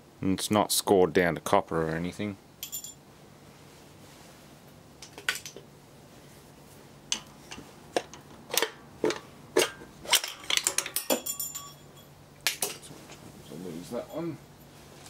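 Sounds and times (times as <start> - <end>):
steel bar clinking on metal: 9.6 - 12.1.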